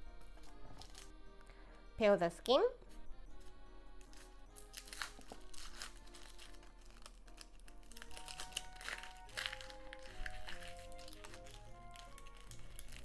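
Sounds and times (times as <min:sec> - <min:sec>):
light background music: 0:00.0 - 0:13.0
onion skin crackling: 0:00.7 - 0:01.1, 0:04.0 - 0:13.0.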